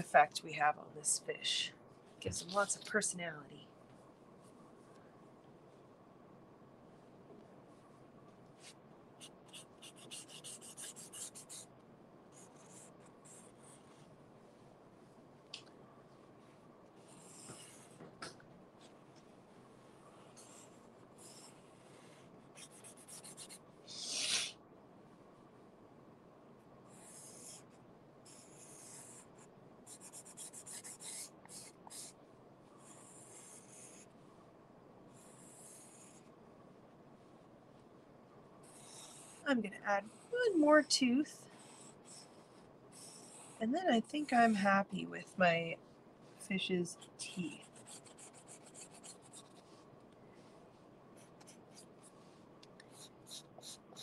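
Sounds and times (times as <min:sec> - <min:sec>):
marker pen scratching on cardboard: 0:08.6 - 0:11.7, 0:12.4 - 0:13.9, 0:17.1 - 0:18.0, 0:20.4 - 0:24.4, 0:26.9 - 0:27.7, 0:28.3 - 0:32.1, 0:32.8 - 0:34.0, 0:35.2 - 0:36.2, 0:38.6 - 0:39.4, 0:41.6 - 0:44.3, 0:47.4 - 0:49.8, 0:51.2 - 0:52.1, 0:52.8 - 0:54.0.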